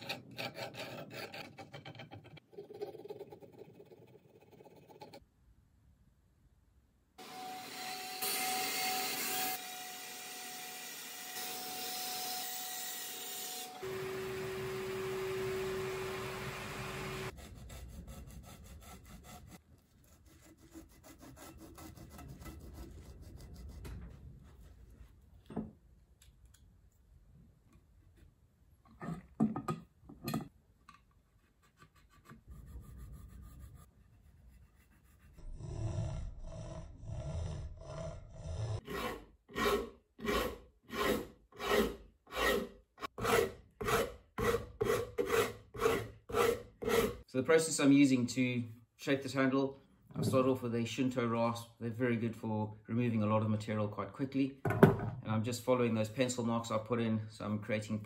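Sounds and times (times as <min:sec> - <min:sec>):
bandsaw cutting wood: 0:07.2 - 0:19.6, 0:38.8 - 0:47.3
rubbing and handling wood: 0:17.3 - 0:26.2, 0:26.8 - 0:35.4.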